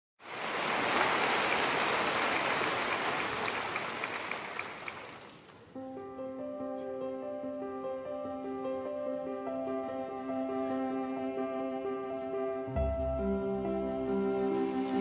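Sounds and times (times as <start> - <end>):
people clapping: 0.2 - 5.8, 14.0 - 15.0
slow keyboard music: 5.8 - 15.0.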